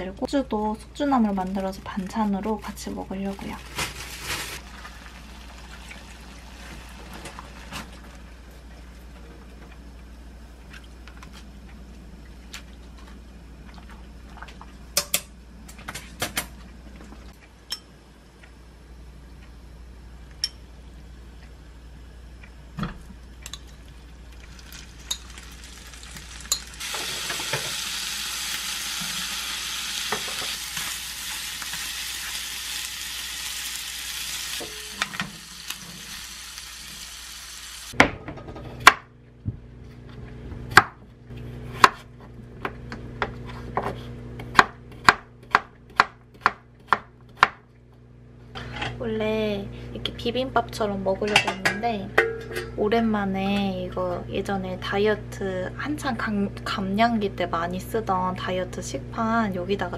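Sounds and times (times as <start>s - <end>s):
meat sizzling in a pan: 24.5s - 38.0s
water boiling hiss: 24.5s - 38.0s
dishes and utensils clinking: 51.3s - 52.8s.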